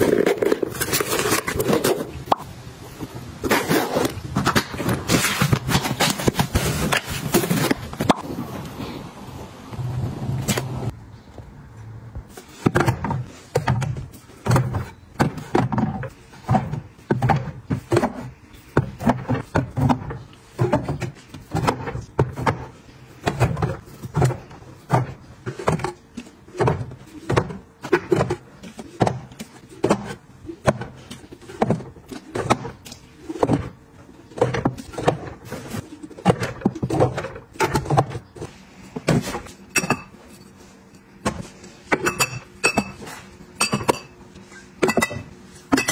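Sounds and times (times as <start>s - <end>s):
bottles knocking on shelf trays: 41.2s - 44.2s.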